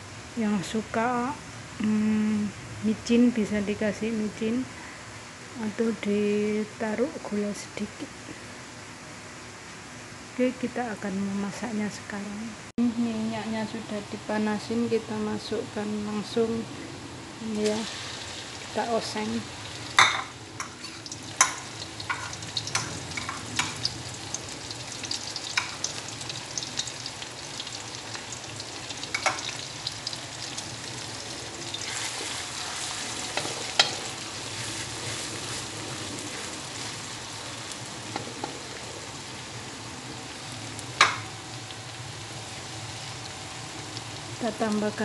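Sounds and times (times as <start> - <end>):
paste sizzling in hot oil: 17.4 - 39.8.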